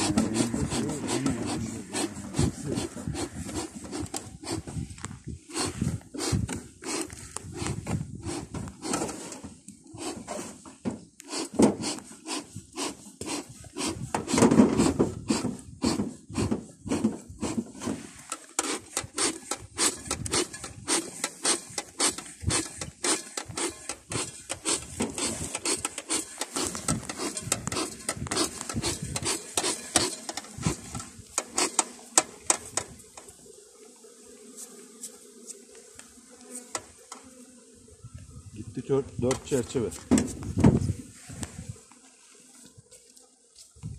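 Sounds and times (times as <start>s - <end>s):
low hum of bees: 0.0s - 12.8s, 20.5s - 43.9s
hive tool scraping wooden box: 0.0s - 33.4s, 34.3s - 37.6s, 39.0s - 43.9s.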